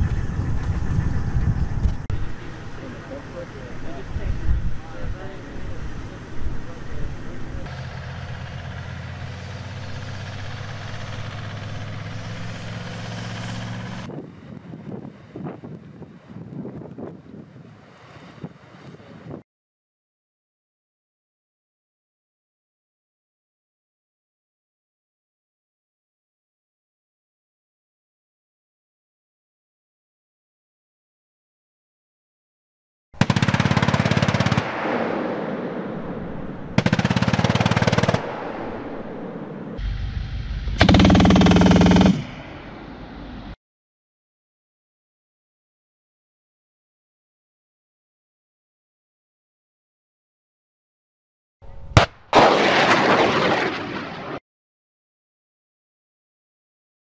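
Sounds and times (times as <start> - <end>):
diesel truck engine running: 0.0 - 4.3, 4.9 - 14.1, 39.8 - 43.6
machine gun firing bursts: 33.2 - 34.9, 36.8 - 38.4, 40.8 - 42.4.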